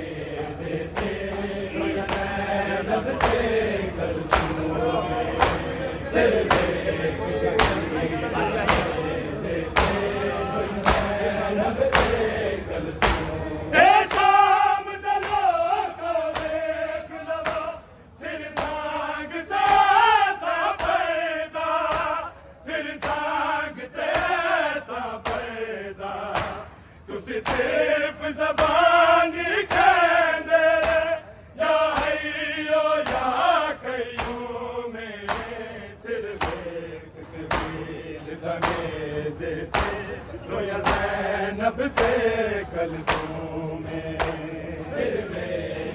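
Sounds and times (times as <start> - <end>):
men chanting in unison: 0.0 - 45.9
hand slaps on chest: 3.1 - 3.4, 4.3 - 4.6, 5.4 - 5.7, 7.6 - 7.8, 8.7 - 8.9, 10.8 - 11.2, 13.0 - 13.3, 21.9 - 22.2, 26.3 - 26.6, 30.8 - 31.0, 31.9 - 32.2, 34.1 - 34.5, 35.3 - 35.6, 36.4 - 36.7, 37.5 - 37.8, 38.6 - 38.9, 39.7 - 40.0, 43.1 - 43.4, 44.2 - 44.4.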